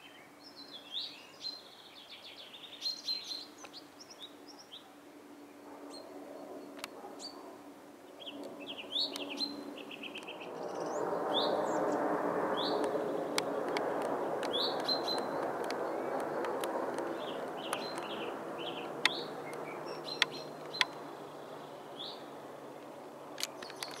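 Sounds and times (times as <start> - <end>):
small birds chirping: 0.0 - 24.0
jet airliner rumble: 5.6 - 24.0
sharp clicks: 12.8 - 18.2, 18.9 - 21.0, 23.4 - 24.0.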